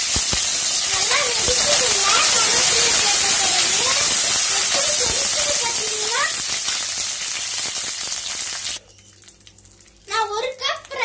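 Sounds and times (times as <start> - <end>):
hot oil sizzling in a pan: 0.0 - 11.0.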